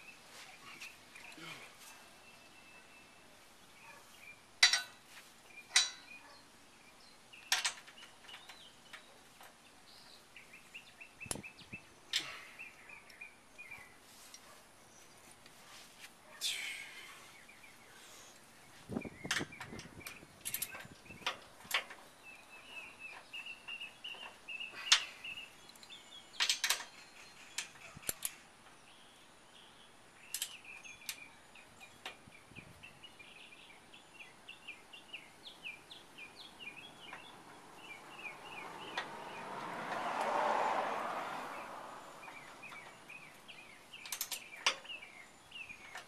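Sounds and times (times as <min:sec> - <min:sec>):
birds chirping: 0:00.0 - 0:46.0
hand tools clicking and clinking: 0:04.6 - 0:05.0, 0:05.7 - 0:06.2, 0:19.3 - 0:22.1, 0:44.0 - 0:45.0.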